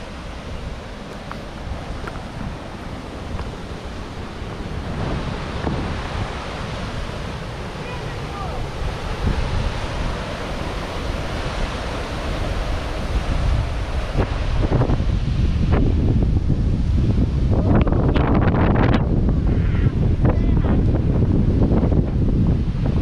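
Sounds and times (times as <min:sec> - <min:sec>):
waterfall rushing: 0:00.0 - 0:18.1
wind rumble on microphone: 0:00.0 - 0:23.0.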